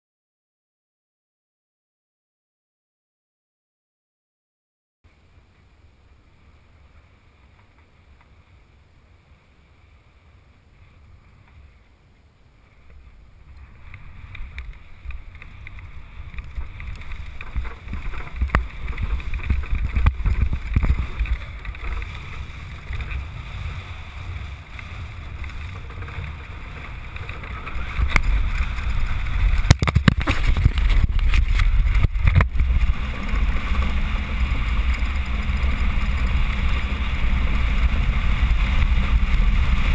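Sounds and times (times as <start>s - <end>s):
land yacht rolling rumble: 5.1s - 39.9s
wind hiss on microphone: 5.2s - 39.9s.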